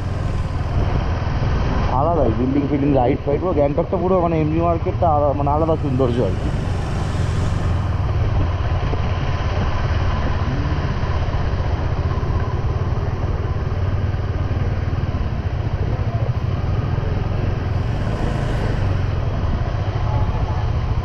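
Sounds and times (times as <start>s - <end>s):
rushing noise: 0.0s - 2.3s, 4.8s - 9.4s, 17.5s - 19.9s
motorcycle engine running: 0.0s - 21.0s.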